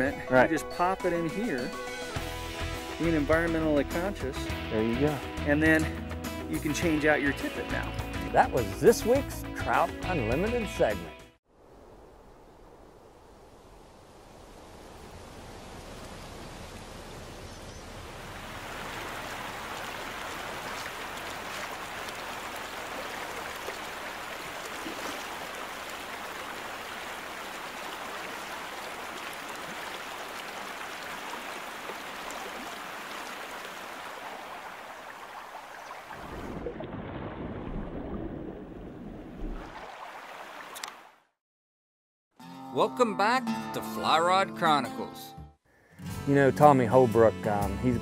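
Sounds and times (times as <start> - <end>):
river water rushing: 14.9 - 36.7, 39.6 - 41.0.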